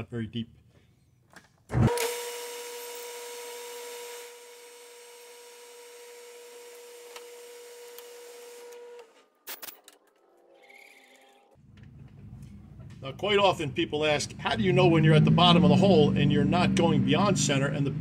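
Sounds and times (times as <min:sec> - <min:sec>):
drill cutting hiss: 0:01.8 - 0:09.0.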